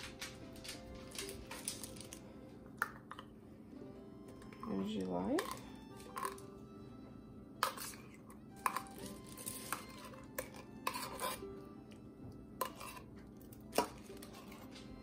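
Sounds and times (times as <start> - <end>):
soft background music: 0.0 - 15.0.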